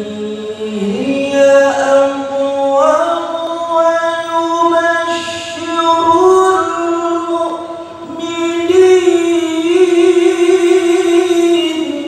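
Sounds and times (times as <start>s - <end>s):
man reciting melodically: 0.0s - 12.0s.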